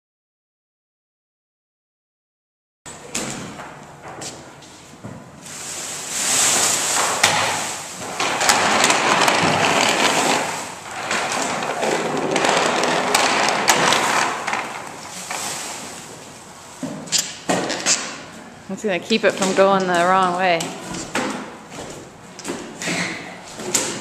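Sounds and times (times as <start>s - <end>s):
plastic sheeting rustling: 5.4s - 16.8s.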